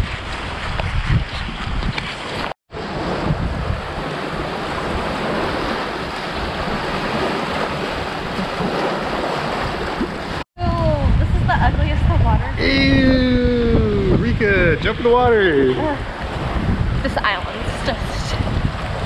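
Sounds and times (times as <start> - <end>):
wind buffeting microphone: 0.0 - 19.0
surf washing on sand: 2.2 - 10.4.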